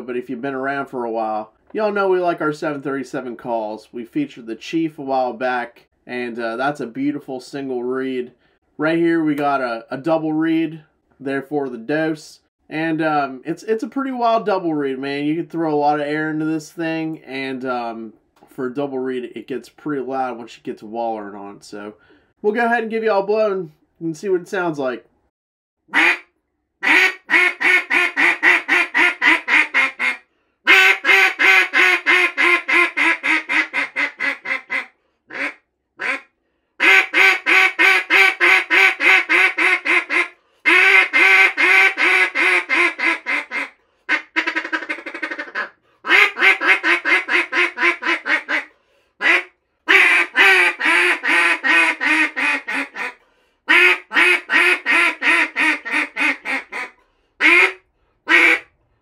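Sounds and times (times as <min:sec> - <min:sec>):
duck call quacks: 0:25.9 - 0:58.7.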